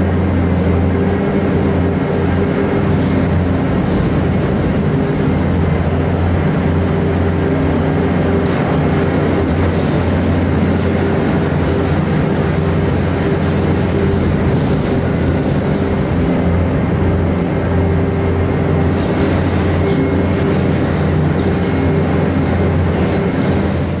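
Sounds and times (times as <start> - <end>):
deep machine hum: 0.0 - 24.0.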